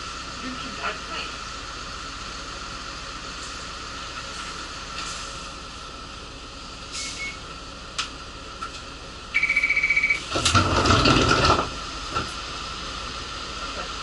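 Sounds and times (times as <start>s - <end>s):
bus engine idling: 0.0s - 14.0s
warning buzzer beeping: 9.4s - 10.2s.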